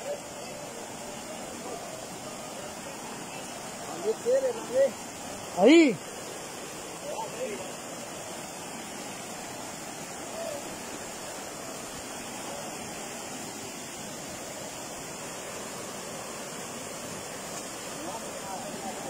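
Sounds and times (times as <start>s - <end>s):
river rapids rushing over rocks: 0.0s - 19.0s.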